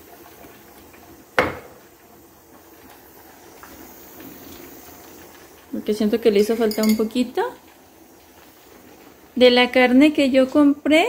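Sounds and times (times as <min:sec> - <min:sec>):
kitchenware clanking on pot: 0:06.4 - 0:07.2.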